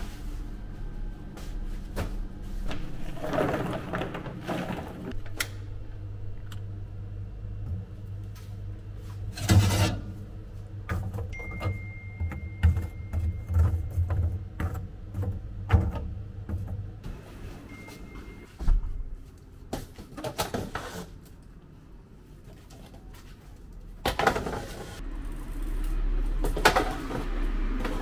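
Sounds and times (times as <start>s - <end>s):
low machine hum: 0.0s - 19.7s.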